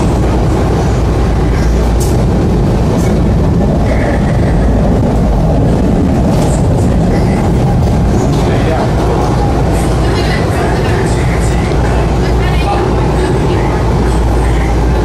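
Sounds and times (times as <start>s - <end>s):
metro train rumble: 0.0s - 15.0s.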